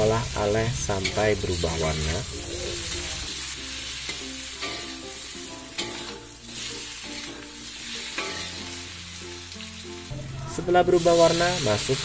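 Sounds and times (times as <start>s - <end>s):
food sizzling in hot oil: 0.0s - 12.0s
soft background music: 0.0s - 12.0s
metal spatula scraping wok: 0.5s - 9.2s.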